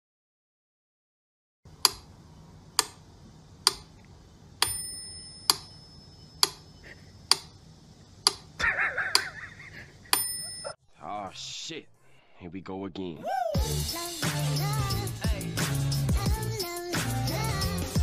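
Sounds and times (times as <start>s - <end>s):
bell-like ding: 4.6s - 6.3s, 10.2s - 10.8s
short wavering cry: 13.2s - 13.7s.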